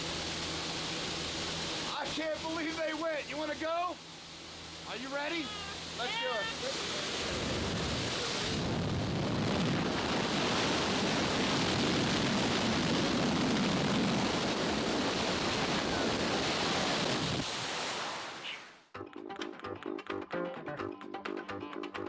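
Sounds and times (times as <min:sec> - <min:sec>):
wind rushing into plane: 0:06.8 - 0:18.6
wind buffeting microphone: 0:07.2 - 0:17.5.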